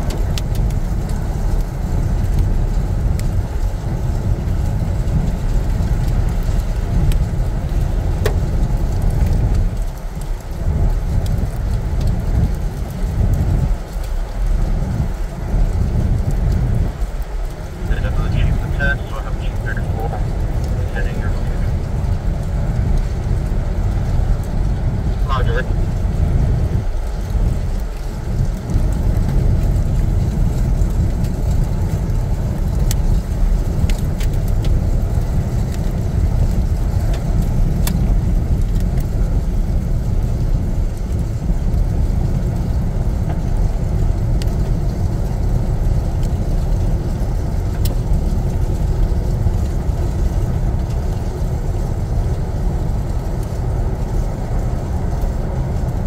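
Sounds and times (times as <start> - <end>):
vehicle engine and road rumble: 0.0 - 56.0.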